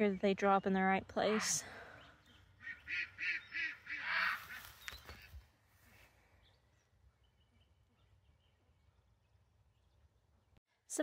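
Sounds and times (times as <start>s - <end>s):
ducks quacking: 2.6s - 4.7s.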